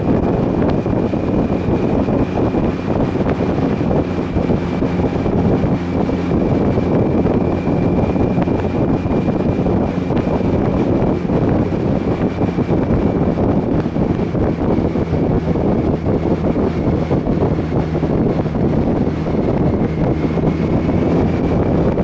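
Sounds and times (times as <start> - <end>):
motorcycle engine cruising: 0.0 - 22.0
wind noise on microphone: 0.0 - 22.0.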